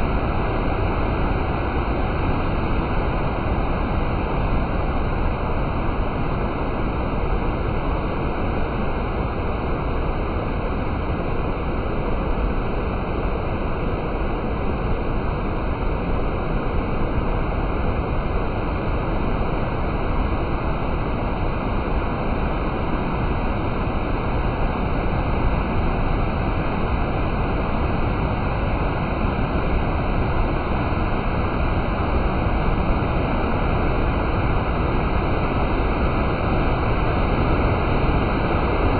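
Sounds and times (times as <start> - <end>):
stream rushing over boulders: 0.0 - 38.9.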